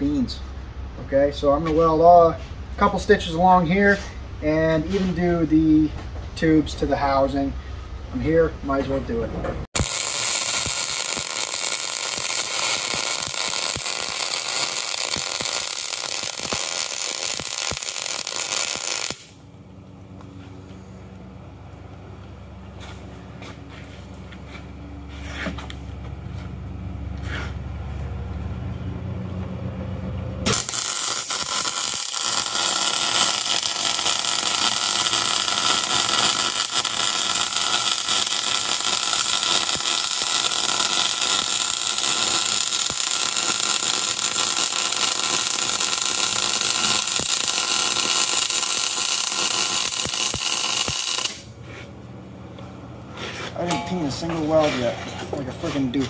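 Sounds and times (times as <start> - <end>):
welding arc crackle: 9.7 - 19.5, 30.4 - 51.5
low steady rumble: 18.2 - 50.2.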